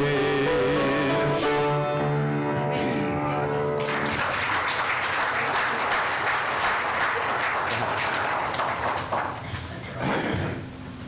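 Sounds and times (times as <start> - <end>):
congregation applauding: 3.6 - 9.9.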